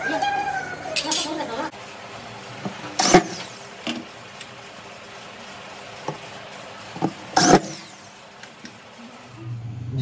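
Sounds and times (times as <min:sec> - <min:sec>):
electric drill driving screws: 0:03.0 - 0:03.6, 0:07.4 - 0:08.1.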